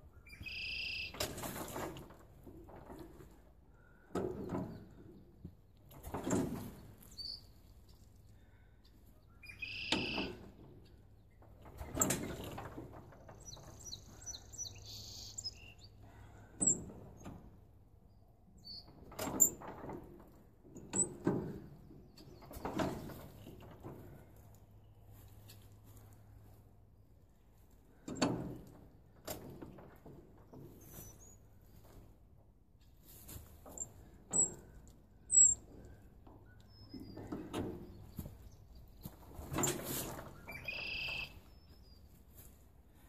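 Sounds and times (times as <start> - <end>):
birds chirping: 0.0 - 1.2, 7.1 - 11.4, 13.3 - 16.8, 40.2 - 42.2
tractor engine being hand-cranked: 1.2 - 7.1, 10.0 - 14.4, 18.8 - 24.5, 27.9 - 31.2, 33.6 - 41.2.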